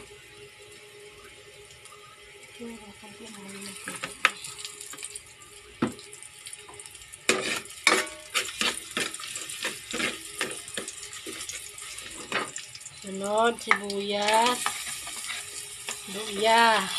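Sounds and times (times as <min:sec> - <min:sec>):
garlic sizzling in oil: 0:00.0 - 0:16.9
utensil scraping and clinking pot: 0:07.3 - 0:12.6, 0:13.6 - 0:16.9.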